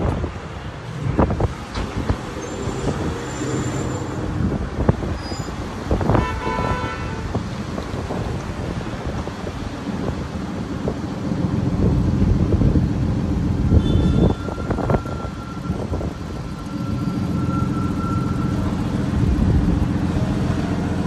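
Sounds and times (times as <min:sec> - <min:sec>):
street traffic rumbling: 0:00.0 - 0:21.0
high steady pitched tone: 0:13.6 - 0:19.6.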